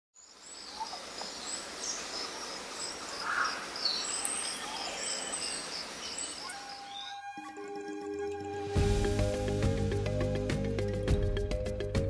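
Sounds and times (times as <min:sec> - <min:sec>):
steady background hiss: 0:00.2 - 0:06.9
insects chirping: 0:00.2 - 0:07.9.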